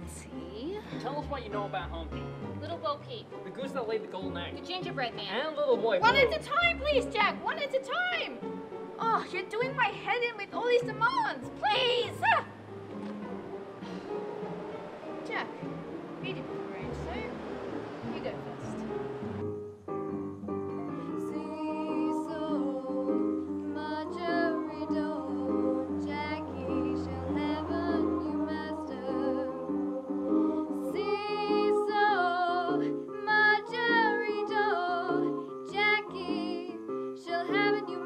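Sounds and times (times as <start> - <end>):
held instrumental chords: 0.0 - 38.0
woman singing with vibrato: 21.2 - 38.0.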